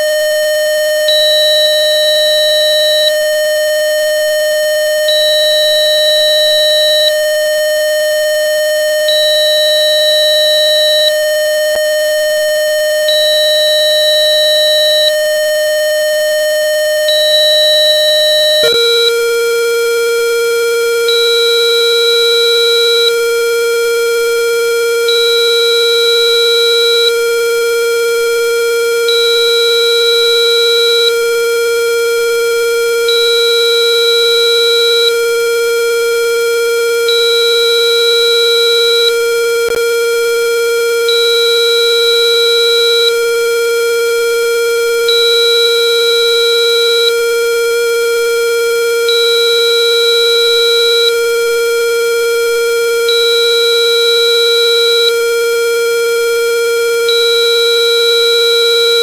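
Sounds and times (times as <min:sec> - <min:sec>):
buzzy synthesized tone: 0:18.6 - 0:19.1
high beep: 0:18.6 - 0:19.1.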